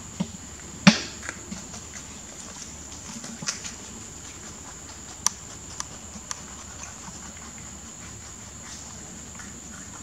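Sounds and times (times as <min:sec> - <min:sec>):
rabbit chewing greens: 0:00.0 - 0:10.0.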